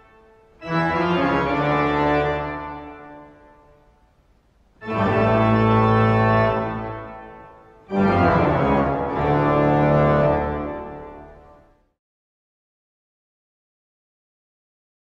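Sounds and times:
organ chords: 0.0s - 4.0s, 4.7s - 11.8s.

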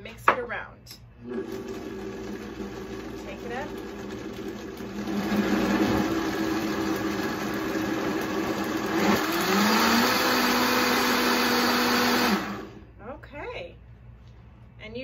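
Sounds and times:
blender motor whining: 1.2s - 12.8s.

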